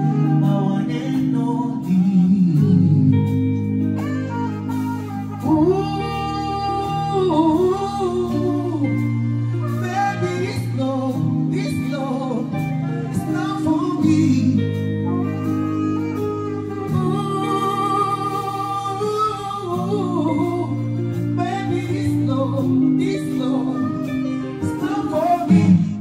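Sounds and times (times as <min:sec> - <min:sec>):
live band music: 0:00.0 - 0:26.0
man singing: 0:00.0 - 0:26.0.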